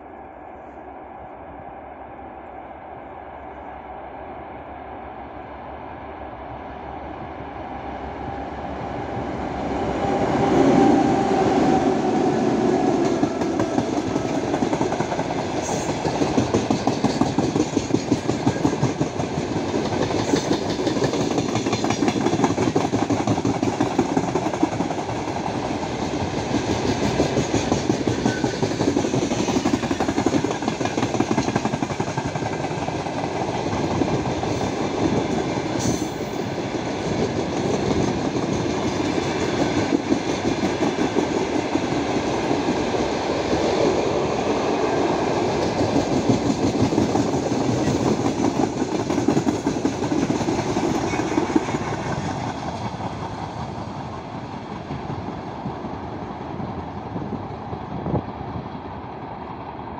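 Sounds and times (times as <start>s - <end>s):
diesel locomotive engines: 0.0s - 59.9s
train wheels clattering over rail joints: 13.1s - 25.6s, 26.4s - 36.3s, 45.5s - 53.6s.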